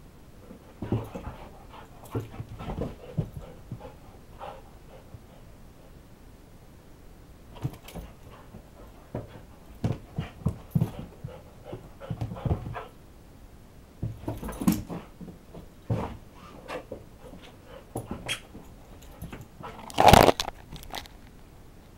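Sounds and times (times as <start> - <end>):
paws thumping on carpeted stairs: 0.4 - 5.4, 7.5 - 13.0, 14.0 - 20.2
dog panting: 0.8 - 5.4.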